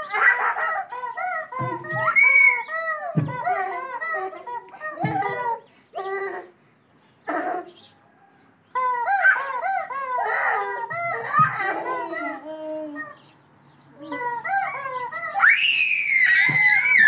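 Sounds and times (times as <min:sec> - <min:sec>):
rubber chicken toy squawking: 0:00.0 - 0:05.7, 0:08.7 - 0:13.3, 0:14.0 - 0:17.0.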